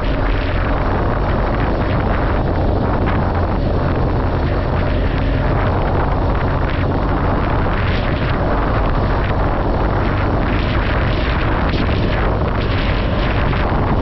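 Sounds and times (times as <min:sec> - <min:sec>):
motorcycle engine droning: 0:00.0 - 0:14.0
wind rush on microphone: 0:00.0 - 0:14.0.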